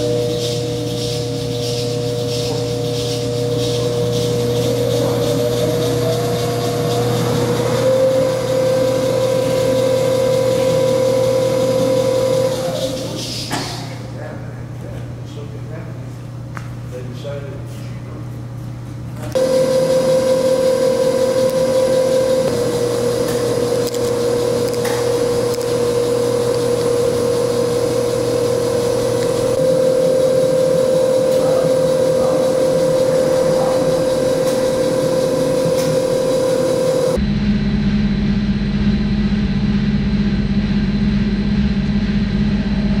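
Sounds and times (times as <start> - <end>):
electric gear drive whining: 0.0 - 14.1, 19.3 - 37.2
low dull machine hum: 0.0 - 43.0.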